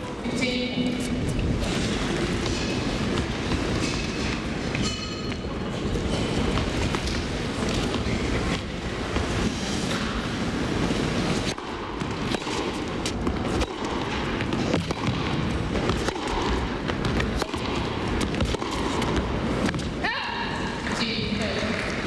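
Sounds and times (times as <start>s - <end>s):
rackets hitting tennis ball: 1.6s - 10.2s, 11.2s - 22.0s
ball bouncing on court: 11.5s - 19.9s.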